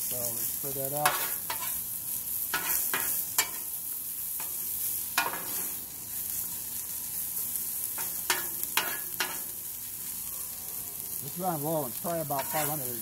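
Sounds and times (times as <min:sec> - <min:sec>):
onions sizzling on a griddle: 0:00.0 - 0:13.0
metal spatula scraping griddle: 0:01.0 - 0:01.8, 0:02.5 - 0:03.7, 0:05.2 - 0:05.8, 0:07.9 - 0:09.5, 0:12.1 - 0:13.0.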